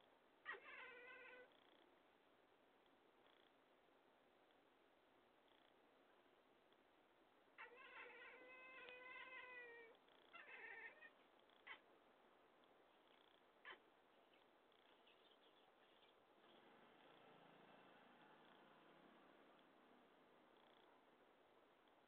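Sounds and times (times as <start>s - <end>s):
cat meowing: 0.5s - 1.5s, 7.6s - 11.8s.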